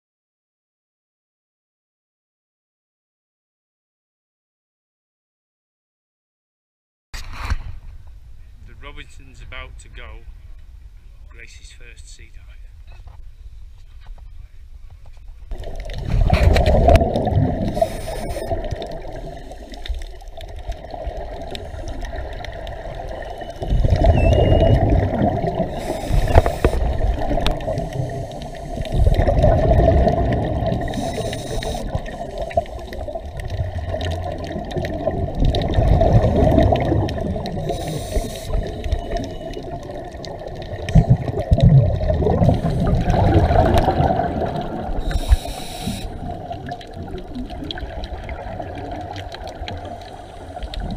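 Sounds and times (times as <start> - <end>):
underwater exhaled bubbles: 15.5 - 50.9.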